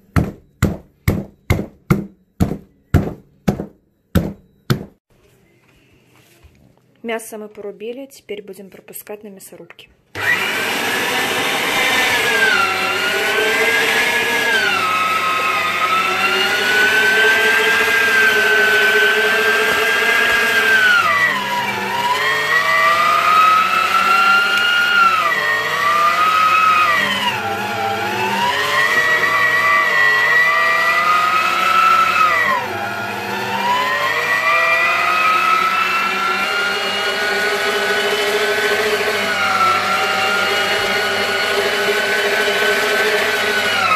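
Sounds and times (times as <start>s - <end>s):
electric meat grinder whine: 10.2s - 43.9s.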